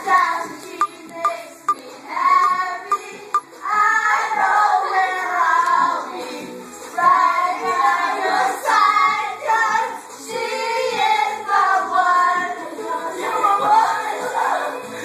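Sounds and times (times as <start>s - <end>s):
child singing: 0.0s - 6.4s
music: 0.0s - 15.0s
voices singing: 0.0s - 15.0s.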